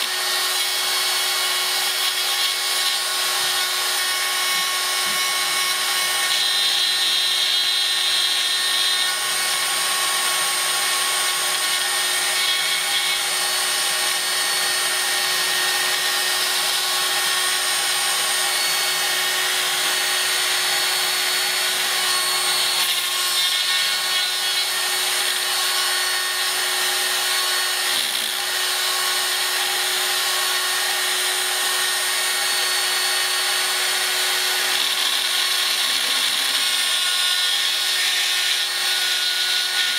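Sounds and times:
rotary drill high whine: 0:00.0 - 0:39.9.

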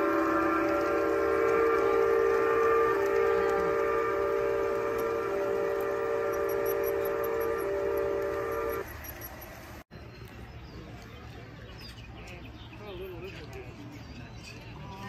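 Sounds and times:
train chime whistle: 0:00.0 - 0:09.4.

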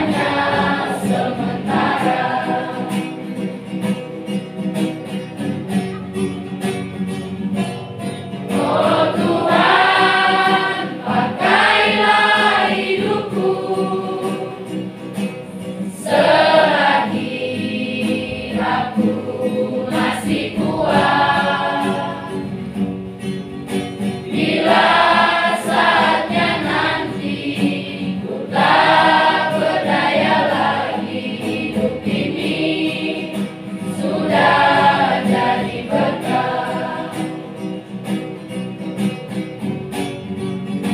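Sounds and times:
choir singing a hymn: 0:00.0 - 0:03.5, 0:08.5 - 0:14.9, 0:15.8 - 0:22.8, 0:24.3 - 0:37.7.

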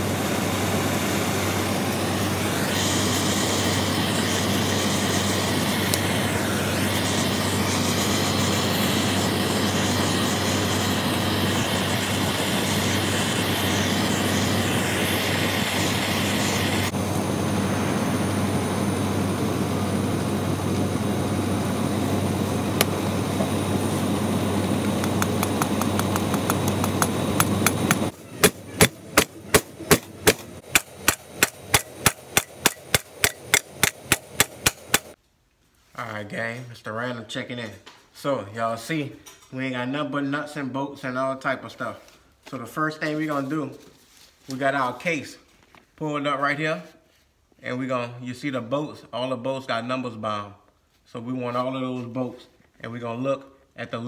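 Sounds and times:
gas torch hissing roar: 0:00.0 - 0:35.2
hammer striking metal: 0:26.8 - 0:35.1.

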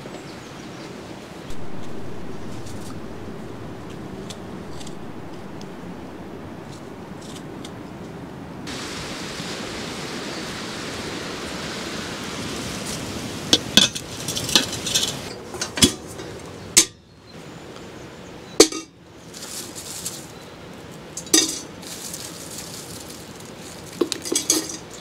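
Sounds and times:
steady hiss: 0:01.5 - 0:15.3.

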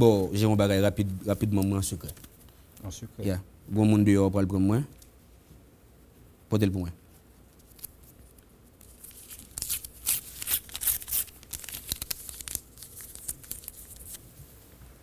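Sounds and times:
paper tearing: 0:08.8 - 0:14.2
paper rustling: 0:08.8 - 0:14.7.

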